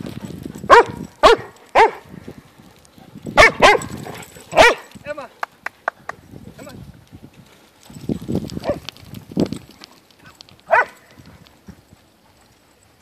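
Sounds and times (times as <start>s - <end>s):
dog barking: 0.7s - 2.1s, 3.4s - 4.9s, 10.7s - 11.0s.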